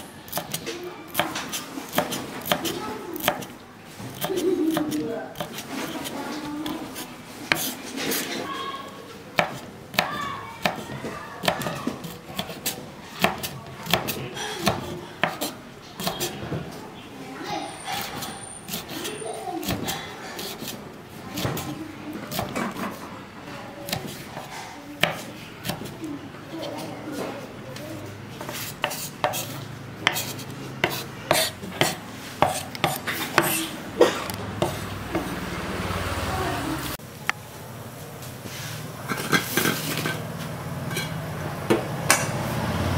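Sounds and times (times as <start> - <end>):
knife chopping on cutting board: 0.3 - 3.5, 4.1 - 8.2, 9.4 - 16.4, 18.0 - 20.8, 21.4 - 23.0, 23.9 - 26.0, 28.4 - 33.7, 34.6 - 35.4
cleaver chopping on wooden board: 9.4 - 16.3, 28.8 - 33.6.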